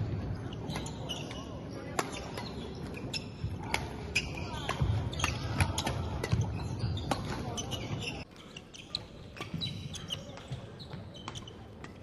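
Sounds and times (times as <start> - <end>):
shoes squeaking on floor: 0.4 - 12.0.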